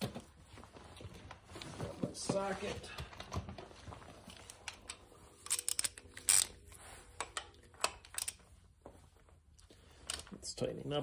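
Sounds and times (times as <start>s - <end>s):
metal tools clinking: 4.6s - 8.4s.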